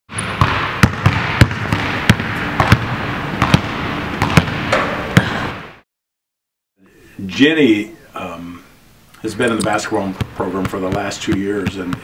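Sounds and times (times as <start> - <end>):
basketball bouncing on hardwood: 0.1 - 5.3, 9.6 - 12.0.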